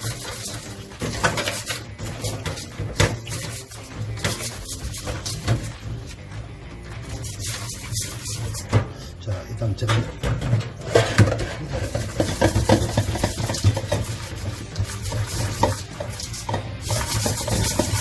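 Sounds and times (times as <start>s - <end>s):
hands rubbing food in bowl: 0.0s - 8.7s, 11.7s - 18.0s
bowl knocking against sink: 10.1s - 14.2s.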